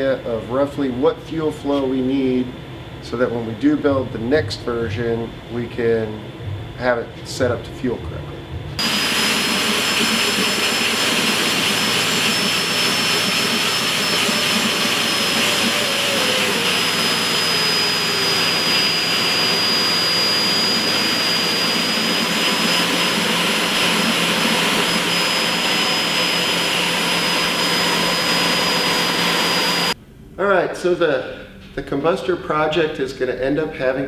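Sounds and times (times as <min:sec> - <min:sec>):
high turbine whistle: 0:08.4 - 0:30.0
turbocharger jet rush: 0:08.6 - 0:30.0.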